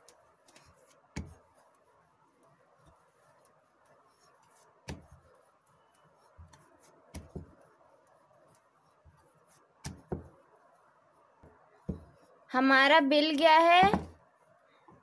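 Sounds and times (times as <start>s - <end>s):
rolling pin rolling dough: 0.0s - 12.4s, 13.8s - 15.0s
rolling pin knocking on board: 4.8s - 5.2s, 7.1s - 7.6s, 9.8s - 10.4s, 11.4s - 12.2s, 13.8s - 14.2s.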